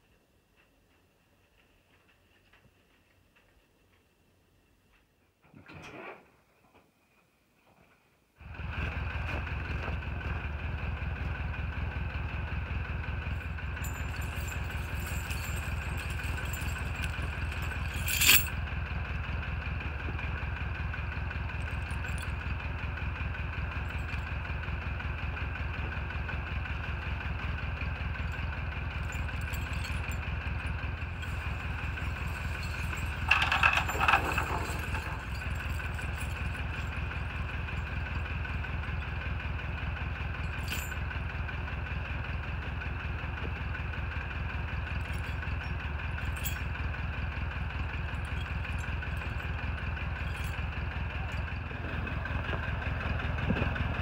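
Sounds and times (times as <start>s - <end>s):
engine idling: 8.4s - 54.0s
tire chains rattling: 9.6s - 54.0s
sharp metallic clink: 13.4s - 18.6s.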